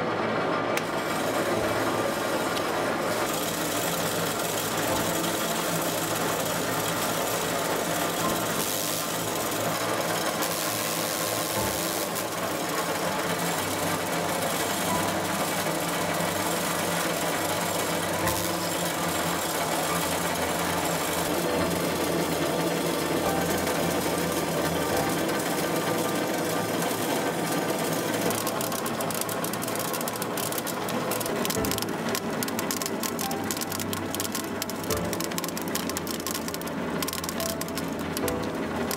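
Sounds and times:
sorting machine rattling screws: 0:00.8 - 0:38.9
sharp clicks: 0:28.3 - 0:38.9.

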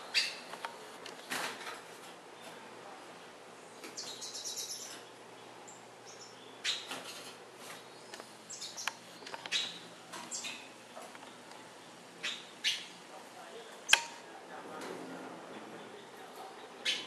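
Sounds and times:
finches chirping and twittering: 0:00.0 - 0:00.5, 0:03.7 - 0:10.7, 0:11.8 - 0:13.0, 0:15.8 - 0:17.0
sharp click: 0:13.9 - 0:14.2.

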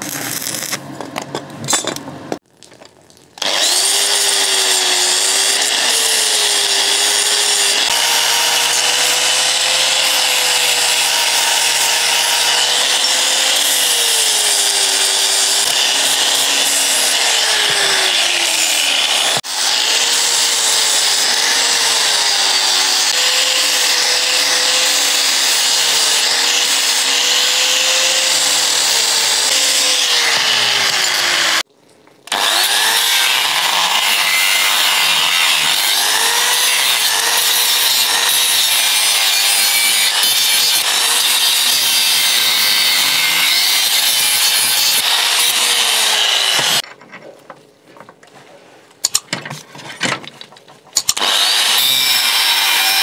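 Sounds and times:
angle grinder cutting metal: 0:00.0 - 0:00.9, 0:03.4 - 0:31.6, 0:32.3 - 0:46.8, 0:51.0 - 0:53.0.

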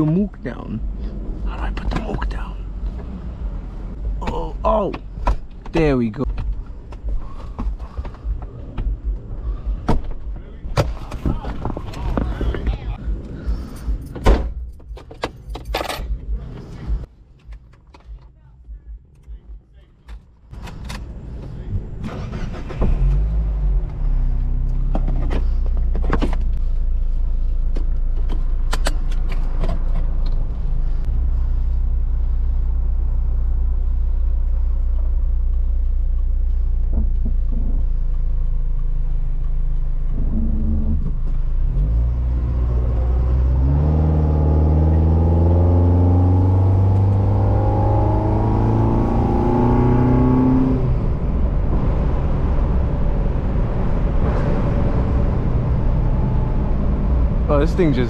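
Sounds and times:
car engine from inside cabin: 0:00.0 - 0:10.0, 0:29.5 - 0:58.0
sharp clicks and knocks: 0:34.9 - 0:41.4.

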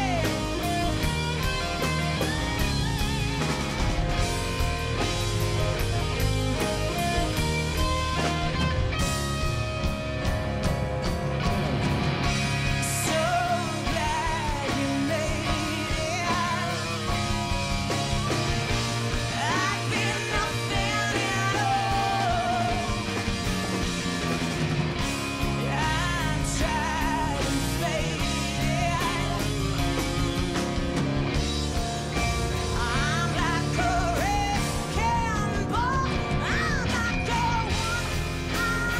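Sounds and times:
live rock band playing: 0:00.0 - 0:38.9
woman singing: 0:12.8 - 0:16.9, 0:19.3 - 0:23.0, 0:25.7 - 0:29.5, 0:32.7 - 0:38.9.

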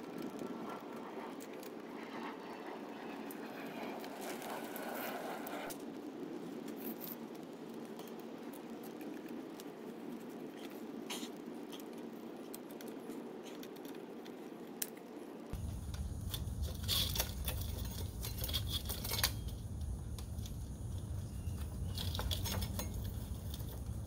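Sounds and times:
steady background hiss: 0:00.0 - 0:24.0
metallic clicks of bicycle parts: 0:15.8 - 0:24.0.

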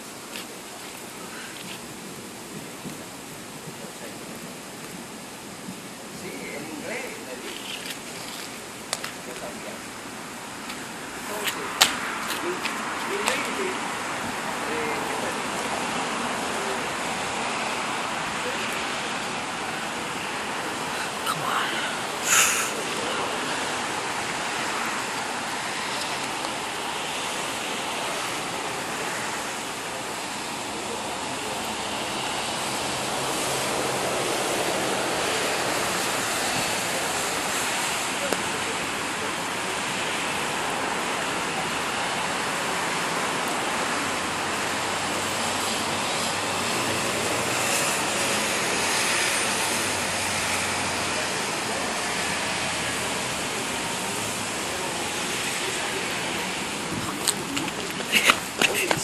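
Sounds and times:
rain pouring: 0:00.0 - 0:59.0.

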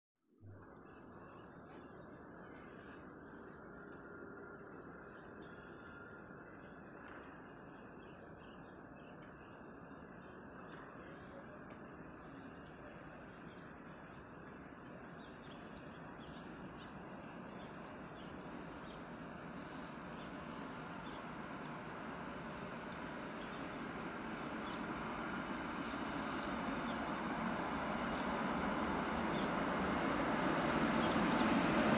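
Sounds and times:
distant train rumble: 0:00.6 - 0:31.9
high insect drone: 0:00.6 - 0:31.9
sharp bird chirps: 0:12.4 - 0:31.9.

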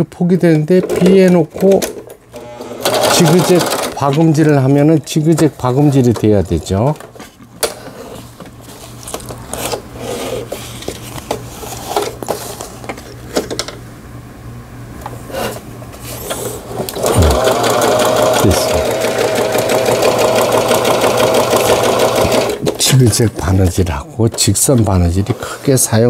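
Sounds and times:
sewing machine running: 0:02.4 - 0:04.1, 0:16.8 - 0:22.8.

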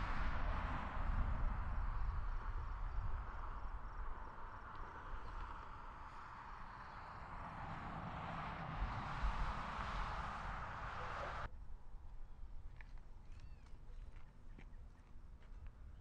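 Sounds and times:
low wind rumble: 0:00.0 - 0:12.7
car tyre hiss: 0:05.4 - 0:11.5.

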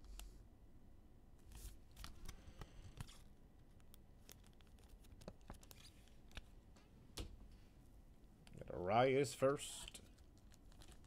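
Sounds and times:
plastic card sleeve crinkling: 0:01.5 - 0:06.5, 0:09.8 - 0:11.0.

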